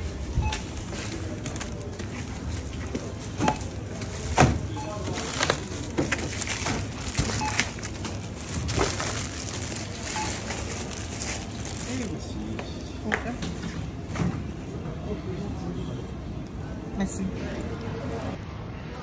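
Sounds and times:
store chatter: 0.0s - 19.0s
checkout beep: 0.1s - 8.9s, 9.8s - 11.0s
plastic packaging crinkling: 4.9s - 12.3s.

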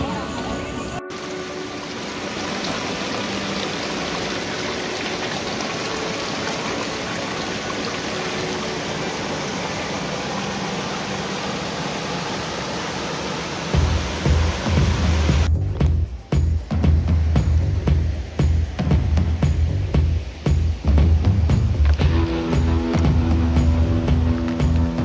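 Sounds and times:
river water rushing over stones: 0.0s - 15.5s.

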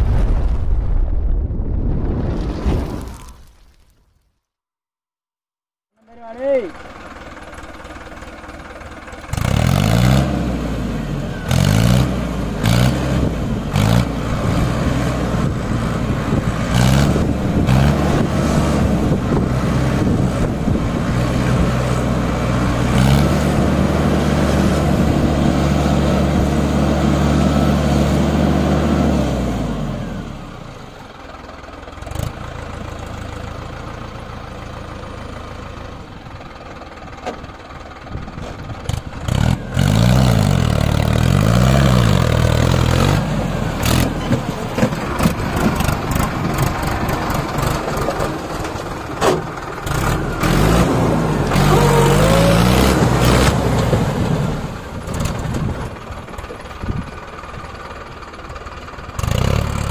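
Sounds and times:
tractor diesel engine revving: 6.1s - 59.9s
knocks and clatter: 44.0s - 50.2s.

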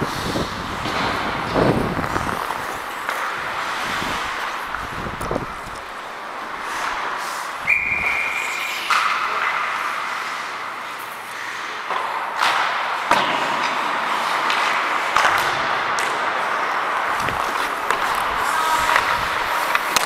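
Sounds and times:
skates hissing on ice: 0.0s - 11.9s
hockey sticks and puck clacking: 0.0s - 20.0s.

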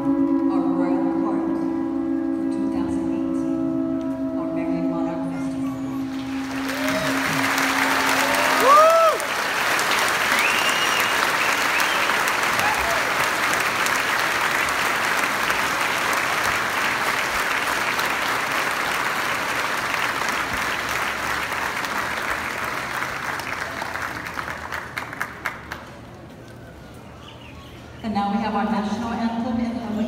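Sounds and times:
large crowd applauding: 6.1s - 26.1s.

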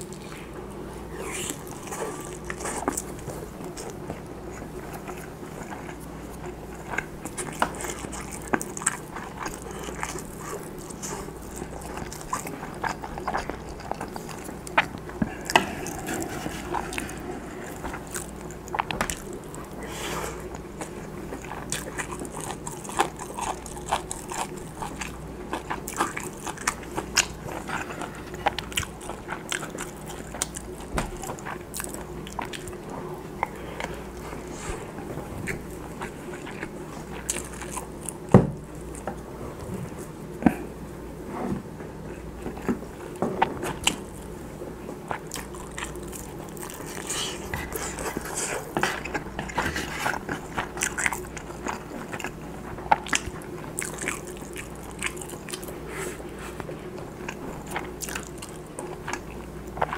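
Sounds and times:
close chewing with mouth clicks: 0.0s - 40.7s, 42.0s - 59.9s
steady low hum: 0.0s - 59.9s.

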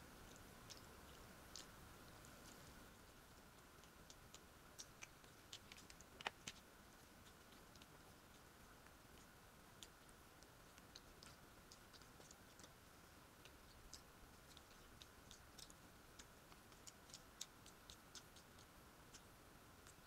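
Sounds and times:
quiet chewing: 0.0s - 20.0s.

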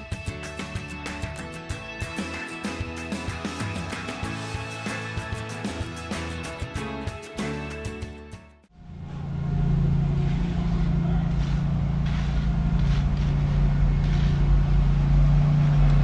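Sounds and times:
background music: 0.0s - 8.7s
engine humming: 8.7s - 16.0s
faint scrapes: 10.0s - 15.0s.

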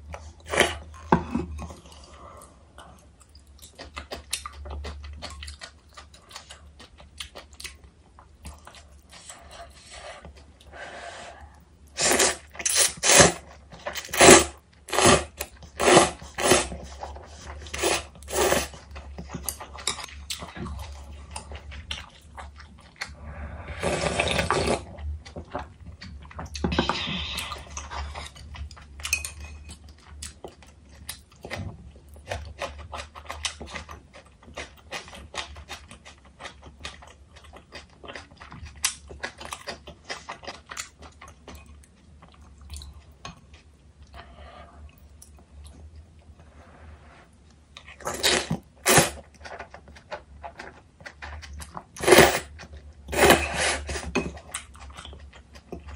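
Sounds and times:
chewing: 0.1s - 10.8s, 11.4s - 46.5s, 47.5s - 55.9s
loud noodle slurps: 12.0s - 13.4s, 14.0s - 16.8s, 17.7s - 18.7s, 23.6s - 24.9s, 48.1s - 49.2s, 52.0s - 52.5s, 53.1s - 54.0s
slurping broth from bowl: 12.0s - 13.4s, 14.0s - 16.8s, 17.6s - 18.8s, 23.3s - 24.9s, 52.0s - 52.5s, 53.1s - 54.1s.

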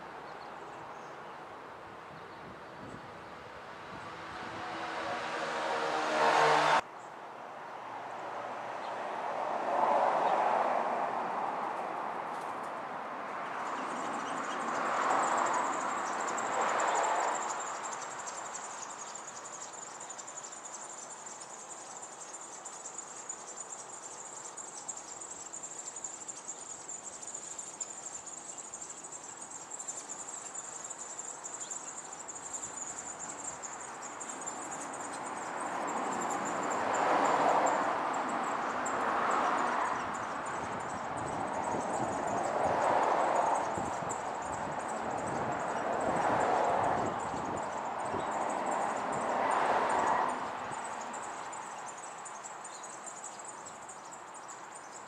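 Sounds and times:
insect trill: 13.4s - 55.0s.

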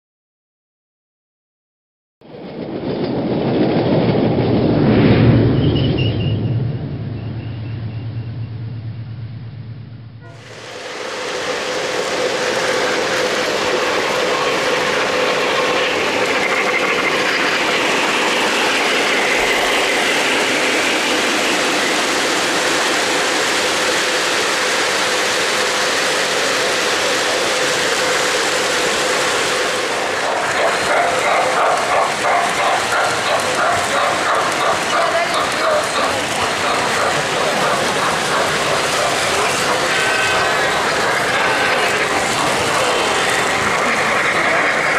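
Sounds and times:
model train wheels clattering: 10.8s - 44.9s.

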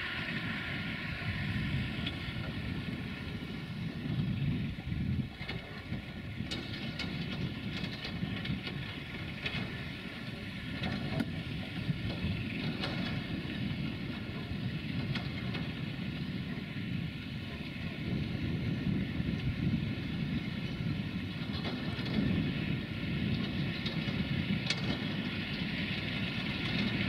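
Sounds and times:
distant diesel locomotive drone: 0.0s - 27.0s
wind on microphone: 0.0s - 27.0s.

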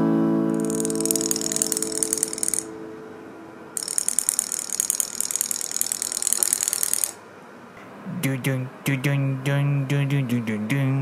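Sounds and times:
toy motor ratcheting whir: 0.5s - 2.7s, 3.8s - 7.2s.

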